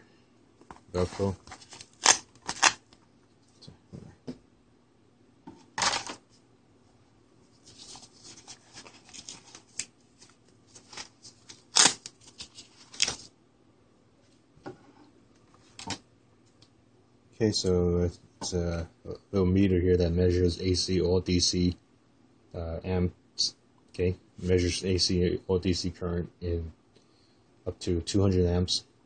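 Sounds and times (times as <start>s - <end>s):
plastic packaging rustling: 0.9s - 3.0s, 7.6s - 13.3s.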